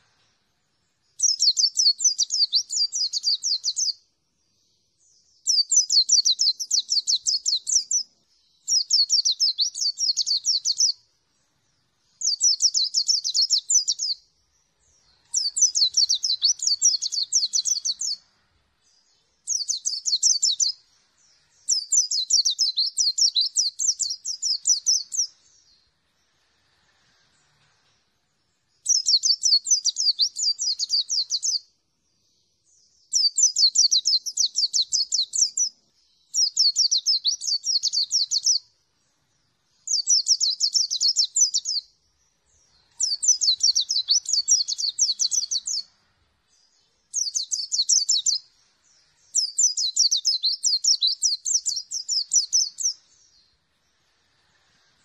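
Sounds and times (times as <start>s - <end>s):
bird twittering: 1.2s - 4.0s, 5.4s - 11.0s, 12.1s - 14.2s, 14.8s - 18.2s, 18.9s - 20.8s, 21.6s - 25.8s, 28.8s - 31.6s, 36.4s - 38.6s, 39.8s - 41.9s, 42.5s - 46.0s, 46.6s - 48.5s, 49.1s - 53.5s.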